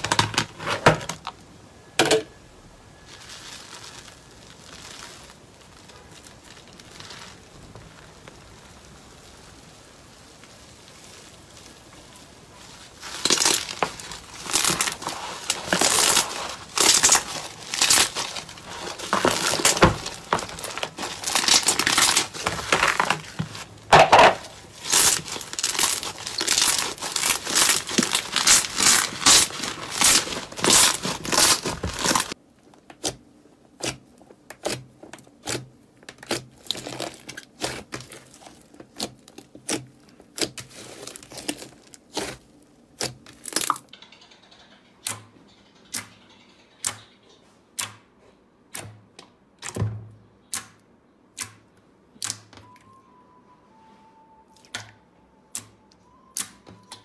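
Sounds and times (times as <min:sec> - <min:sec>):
slime crackling and crinkling: 0:00.0 - 0:43.9.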